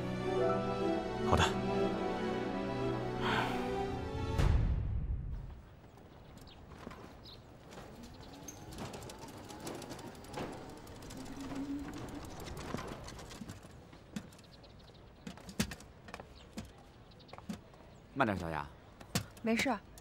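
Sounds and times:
tricycle rattling and clicking: 7.6s - 15.9s.

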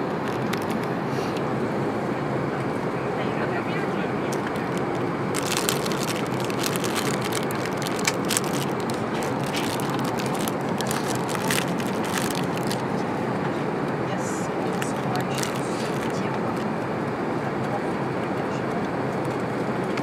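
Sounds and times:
airplane cabin noise in flight: 0.0s - 20.0s
plastic wrapping crinkling: 0.2s - 0.9s, 4.3s - 12.9s, 14.6s - 16.2s.

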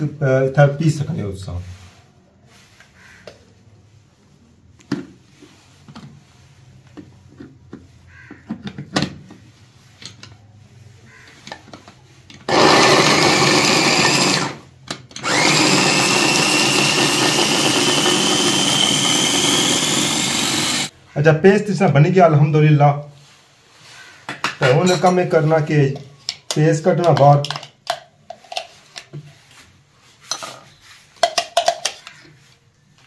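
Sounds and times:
chopper motor whining: 12.5s - 14.6s, 15.2s - 20.9s.

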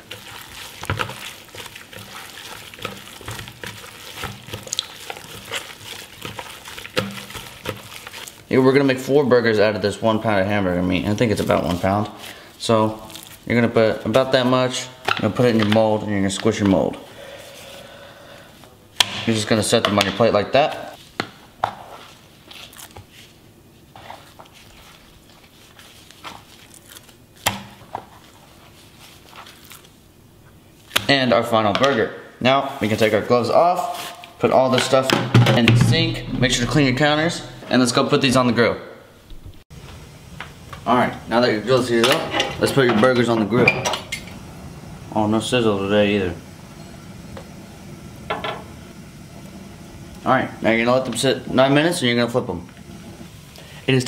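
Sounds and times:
wet squishing of meat: 0.0s - 8.7s, 12.9s - 13.5s, 22.0s - 23.3s, 24.1s - 30.0s
plastic gloves rubbing: 0.0s - 9.0s, 10.6s - 14.8s, 20.9s - 31.0s.

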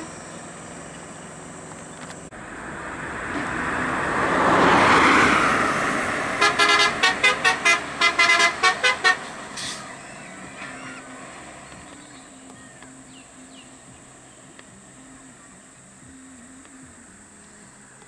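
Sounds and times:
vehicle noise: 0.0s - 18.0s
vehicle horn short toots: 6.4s - 11.0s.

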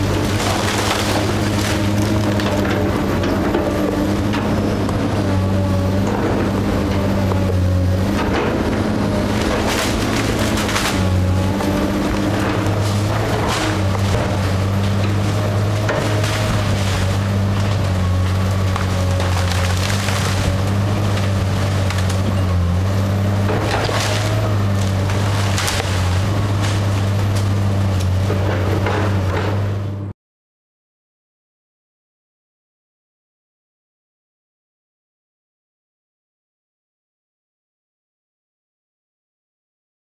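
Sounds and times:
wood cracking and crashing: 0.0s - 29.7s
excavator diesel engine humming: 0.0s - 30.1s.

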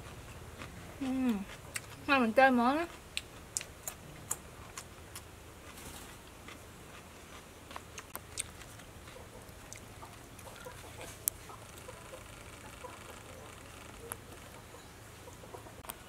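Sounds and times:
chickens clucking faintly: 8.0s - 16.0s.

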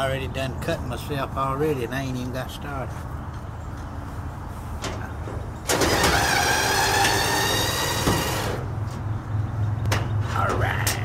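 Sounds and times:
cordless drill running: 5.7s - 8.6s.

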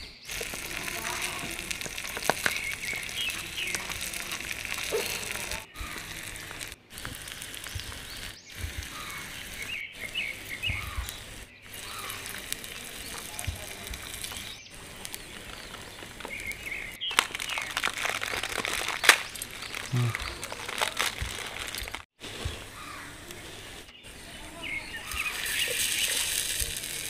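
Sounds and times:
small birds chirping: 0.0s - 27.0s
plastic packet tearing open: 17.0s - 22.1s, 25.2s - 27.0s.

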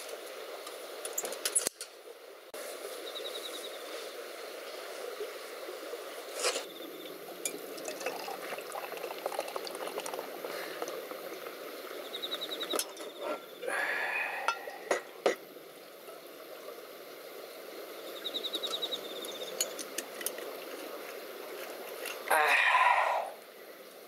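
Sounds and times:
beer pouring and foaming: 4.9s - 18.2s, 19.0s - 23.5s.

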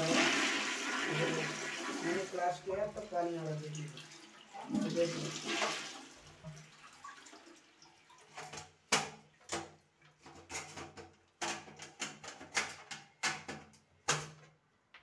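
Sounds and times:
toilet flush water running: 0.0s - 8.4s
flush plate clicks and knocks: 8.4s - 15.0s.

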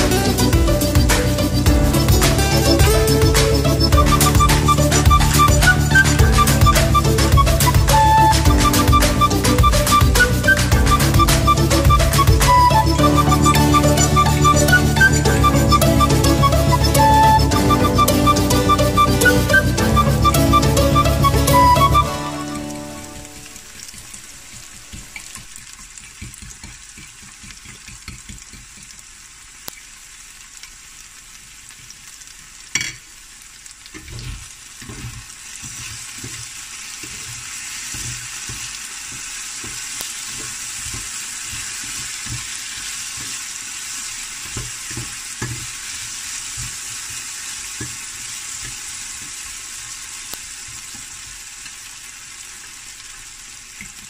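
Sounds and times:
potatoes sizzling in a pan: 0.0s - 5.4s, 22.0s - 54.0s.

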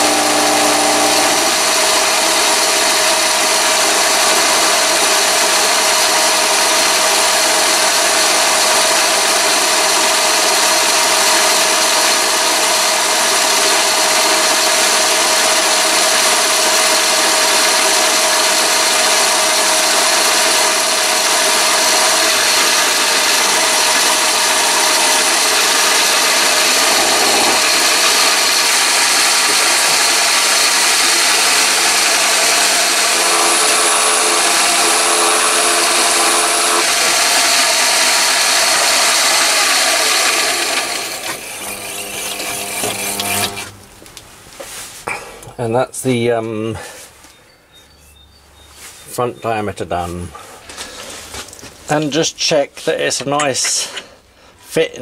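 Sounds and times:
cutting tool on metal: 0.0s - 43.9s
lathe motor whine: 0.0s - 44.0s.

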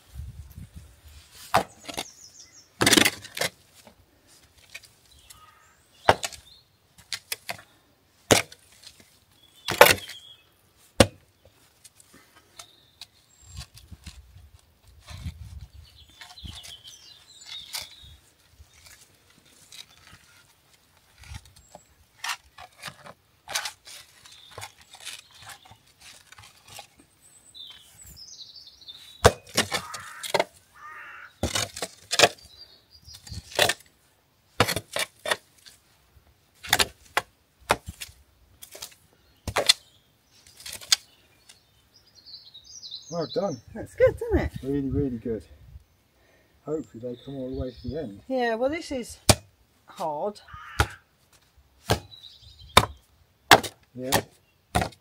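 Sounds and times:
tool striking soil and stones: 1.4s - 2.2s, 2.8s - 4.0s, 6.0s - 10.3s, 10.9s - 27.0s, 29.2s - 30.6s, 31.4s - 35.8s, 36.6s - 41.7s, 49.2s - 55.0s.

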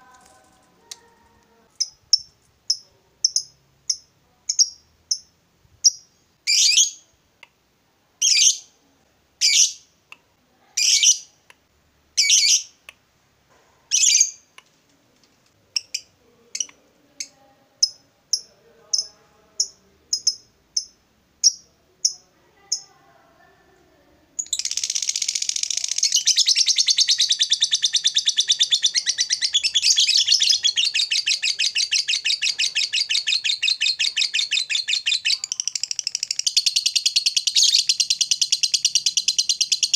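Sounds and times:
lovebird chirping: 0.1s - 7.2s, 8.2s - 8.8s, 9.4s - 9.9s, 10.8s - 11.4s, 12.2s - 12.8s, 13.9s - 14.5s, 15.7s - 22.9s, 24.4s - 39.9s
lovebird chattering trill: 24.4s - 39.9s.

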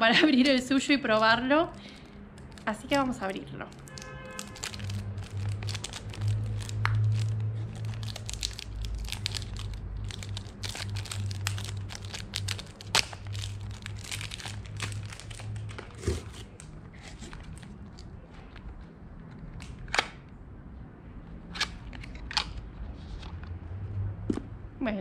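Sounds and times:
cardboard box crinkling: 2.4s - 18.1s.

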